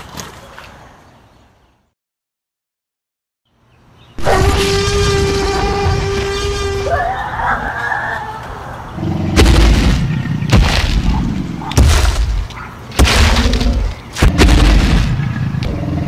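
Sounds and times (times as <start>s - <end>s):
heavy booming stomps: 9.3s - 15.7s.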